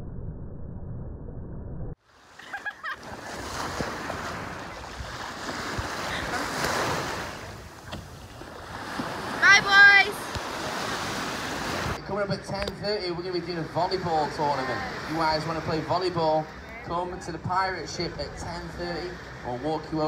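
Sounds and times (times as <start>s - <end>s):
small waves washing over sand: 2.0s - 12.0s
wind rumbling on microphone: 3.1s - 12.0s.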